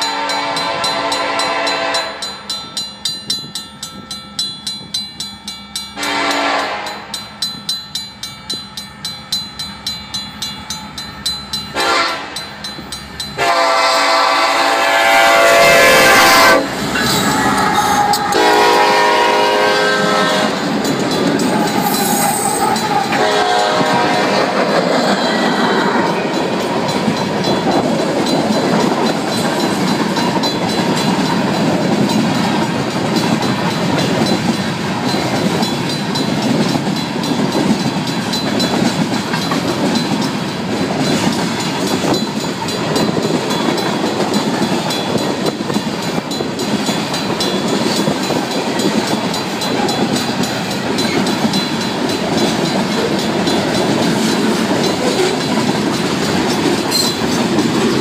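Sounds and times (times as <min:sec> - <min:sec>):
train horn: 0:00.0 - 0:02.4, 0:06.0 - 0:07.2, 0:11.7 - 0:12.4, 0:13.4 - 0:20.7, 0:21.8 - 0:26.0
crossing bell ringing: 0:00.0 - 0:58.0
train wheels clattering on rails: 0:00.0 - 0:58.0.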